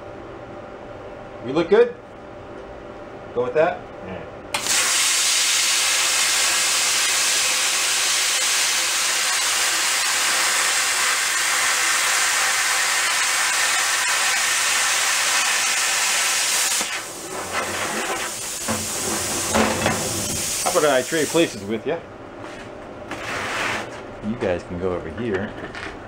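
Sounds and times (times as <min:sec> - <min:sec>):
plasma cutter hissing: 0:04.6 - 0:21.7.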